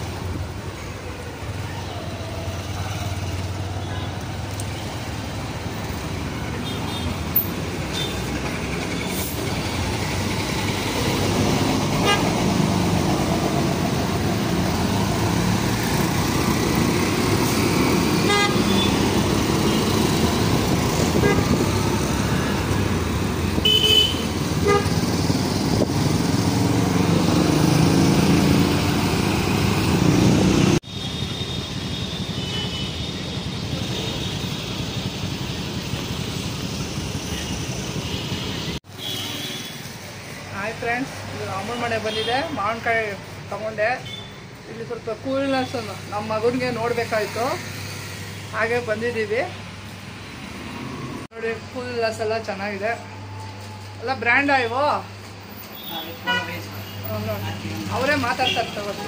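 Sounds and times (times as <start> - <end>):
motorcycle engine: 6.6 - 30.8
car horns tooting: 12.0 - 12.4, 18.2 - 20.0, 21.1 - 21.7, 23.6 - 25.0, 31.0 - 33.2, 55.8 - 57.1.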